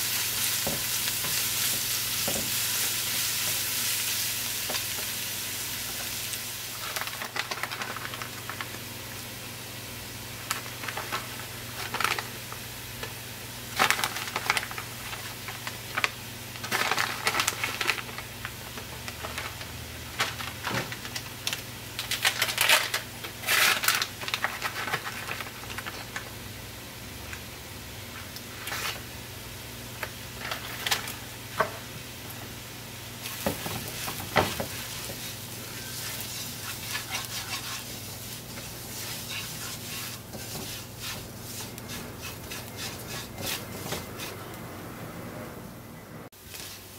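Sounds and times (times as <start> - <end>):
onion frying in a pot: 0.0 - 44.6, 46.4 - 46.9
spoon scraping a pot: 34.7 - 44.5.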